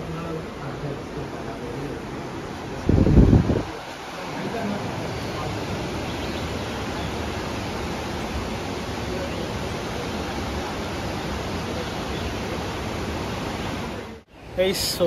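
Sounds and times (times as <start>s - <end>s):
fast-flowing river rushing: 0.0s - 15.0s.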